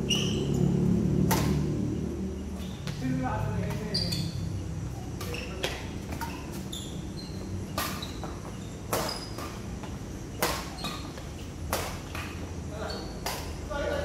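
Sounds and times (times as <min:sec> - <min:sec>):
badminton racket striking shuttlecock: 0:01.2 - 0:01.7, 0:07.7 - 0:12.4, 0:13.1 - 0:13.7.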